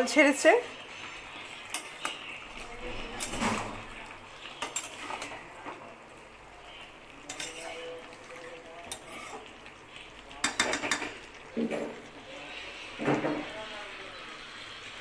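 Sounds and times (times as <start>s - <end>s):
spatula scraping metal pan: 7.3s - 7.8s, 8.9s - 9.5s.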